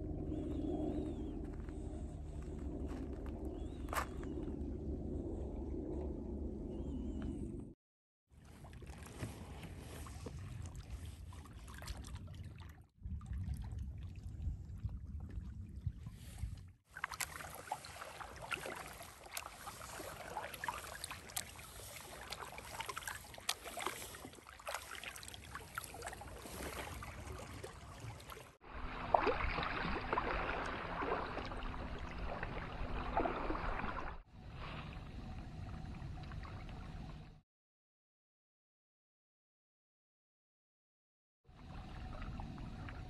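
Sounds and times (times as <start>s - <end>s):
kayak paddle strokes in water: 8.4s - 12.2s, 16.1s - 34.9s
water drips and small splashes: 8.4s - 34.3s.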